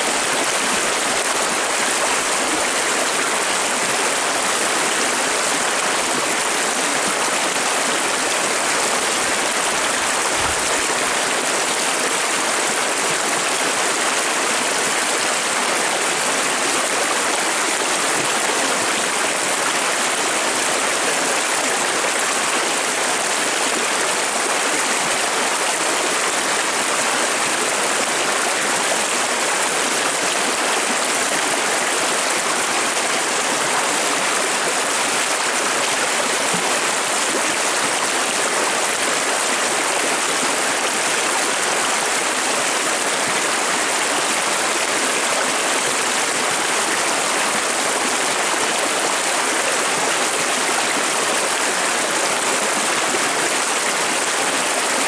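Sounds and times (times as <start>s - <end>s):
river rushing over stones: 0.0s - 55.0s.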